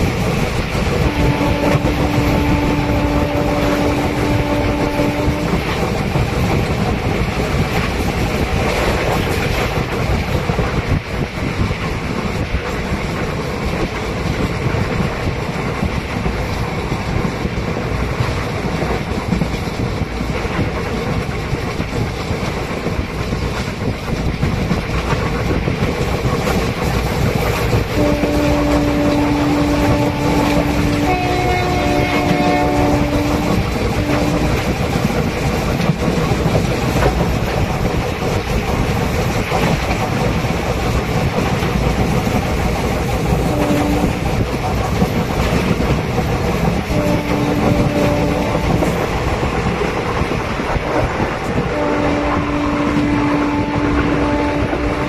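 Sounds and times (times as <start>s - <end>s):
train rumbling at speed: 0.0s - 55.0s
train horn blasts: 0.9s - 6.0s, 27.9s - 35.0s, 43.4s - 44.4s, 46.8s - 49.3s, 51.6s - 55.0s.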